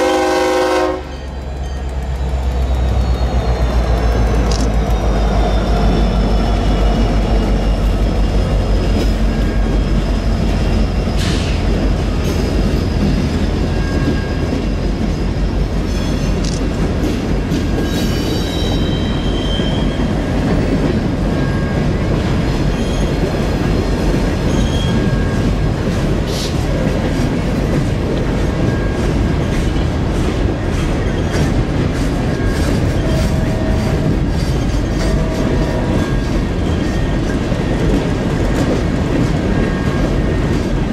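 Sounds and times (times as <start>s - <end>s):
diesel locomotive passing: 0.0s - 40.9s
high wheel squeals: 1.1s - 14.8s, 17.8s - 20.3s, 24.3s - 25.4s.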